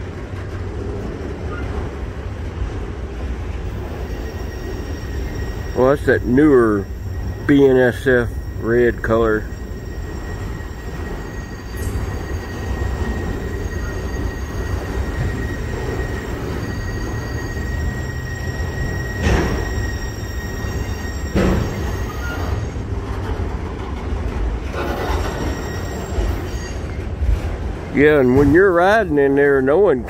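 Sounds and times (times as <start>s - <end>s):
train wheels rumbling on rails: 0.0s - 30.0s
high thin squeal: 3.7s - 22.8s, 24.7s - 27.0s.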